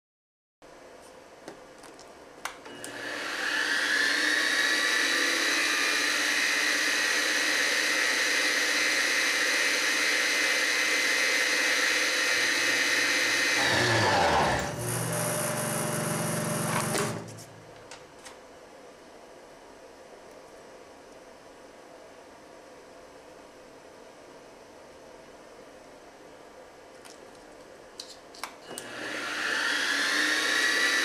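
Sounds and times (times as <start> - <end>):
mill spindle motor whining: 2.7 - 17.7, 28.7 - 31.0.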